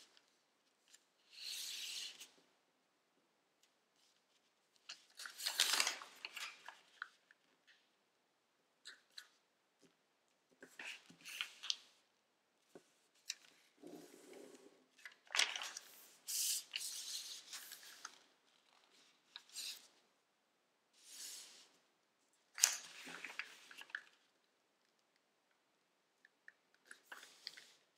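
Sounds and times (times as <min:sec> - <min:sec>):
paper rustling and crinkling: 0:04.0 - 0:07.4, 0:15.0 - 0:19.9, 0:22.6 - 0:24.3
paper crackle: 0:04.8 - 0:07.1.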